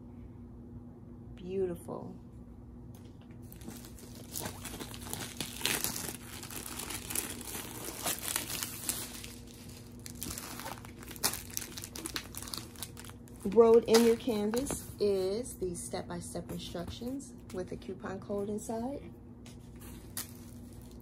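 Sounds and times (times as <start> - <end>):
plastic packaging crinkling: 3.4 - 15.0, 19.8 - 21.0.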